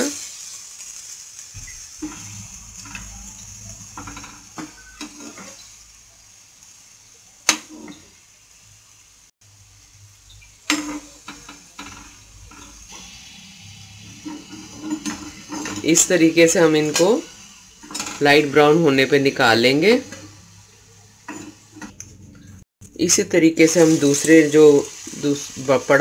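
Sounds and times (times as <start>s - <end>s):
oil sizzling in deep fryer: 0.0s - 26.0s
metal spoon scraping pan: 2.0s - 5.7s, 10.6s - 18.6s, 19.3s - 22.5s.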